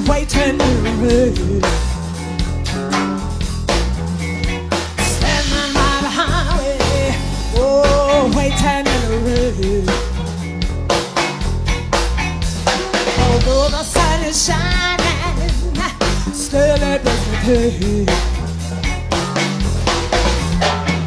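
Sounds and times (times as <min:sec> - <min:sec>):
woman singing: 0:00.0 - 0:01.9, 0:05.0 - 0:10.2, 0:13.2 - 0:18.4
drum kit: 0:00.0 - 0:21.0
electric bass: 0:00.0 - 0:21.0.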